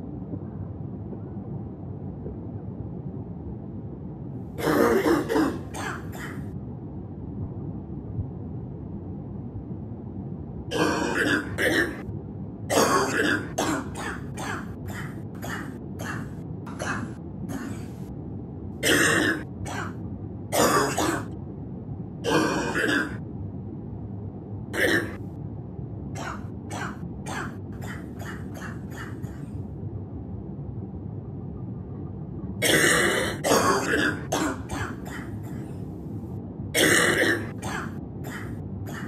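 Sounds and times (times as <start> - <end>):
person coughing: 4.6 - 6.5, 10.7 - 12.0, 12.7 - 18.0, 18.8 - 20.0, 20.6 - 21.3, 22.3 - 23.2, 24.8 - 25.2, 26.2 - 29.5, 32.6 - 35.7, 36.8 - 39.0.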